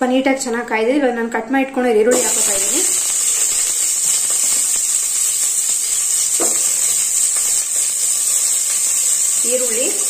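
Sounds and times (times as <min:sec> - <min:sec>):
onions sizzling in oil: 0:02.1 - 0:10.0.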